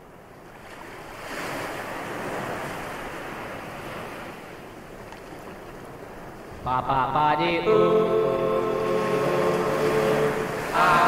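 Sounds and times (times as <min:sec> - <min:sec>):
ocean wave breaking: 0:07.4 - 0:11.0.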